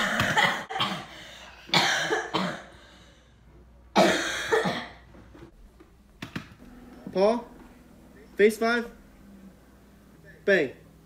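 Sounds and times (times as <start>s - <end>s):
boy coughing hard: 0.0s - 2.8s, 4.0s - 5.0s.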